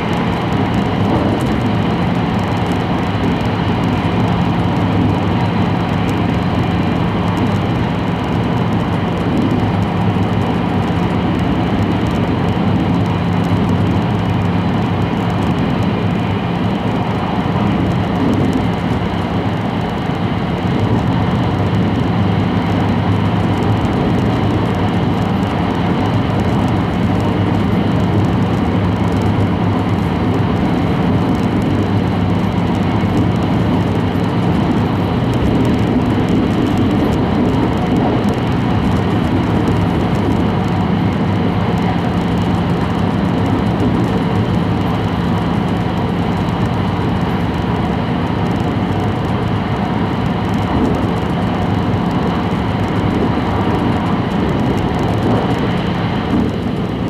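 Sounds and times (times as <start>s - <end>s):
constant low hum: 0.0s - 57.0s
train cabin rumble: 0.0s - 57.0s.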